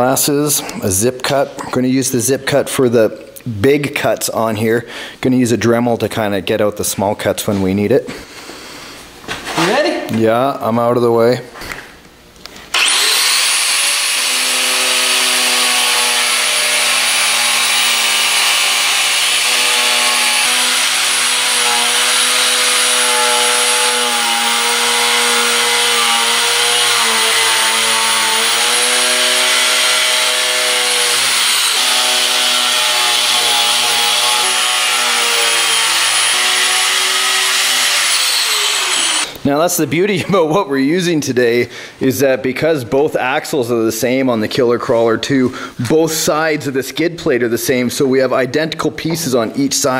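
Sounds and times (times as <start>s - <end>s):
angle grinder cutting metal: 12.7s - 39.4s.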